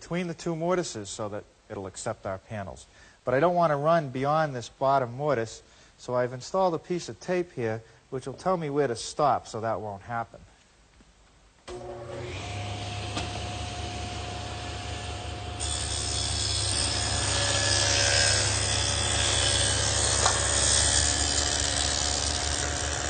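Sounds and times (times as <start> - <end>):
saw cutting wood: 11.7 - 23.0
table saw humming: 11.7 - 23.0.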